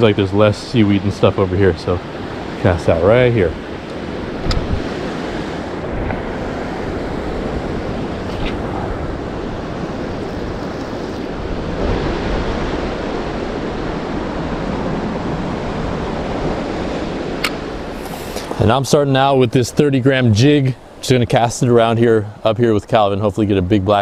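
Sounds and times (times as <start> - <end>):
wind on microphone: 0.0 - 18.8
surf washing against rocks: 0.0 - 22.2.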